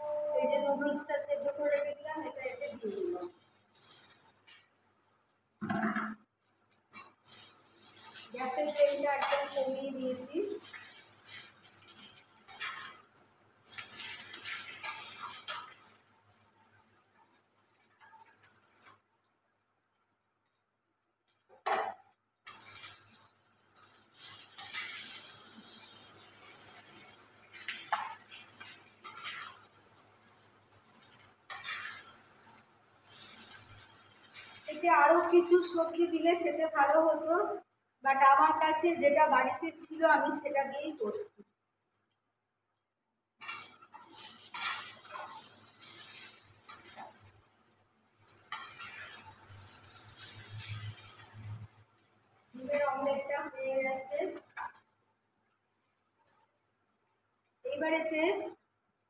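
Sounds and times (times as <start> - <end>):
noodles sizzling in oil: 0.0 - 59.0
knock: 5.6 - 6.2
metal spatula scraping a wok: 6.9 - 13.1, 13.7 - 15.9, 22.4 - 23.1, 23.8 - 29.7, 31.0 - 32.4, 43.4 - 47.3, 48.4 - 51.7.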